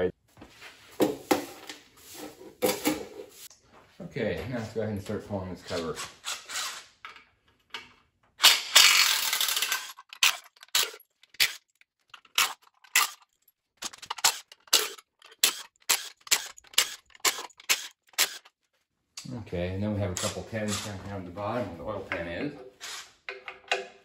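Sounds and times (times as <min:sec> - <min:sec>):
cordless drill spinning out bolt: 0:14.0 - 0:18.5.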